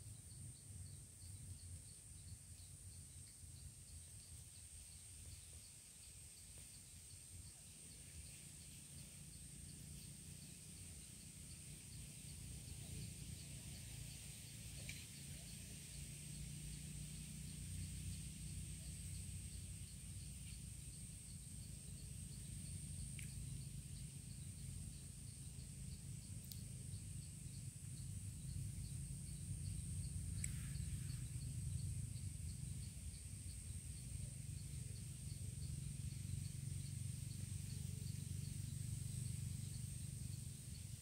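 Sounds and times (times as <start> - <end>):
faint regular chirping: 0.0 - 16.0, 17.5 - 41.0.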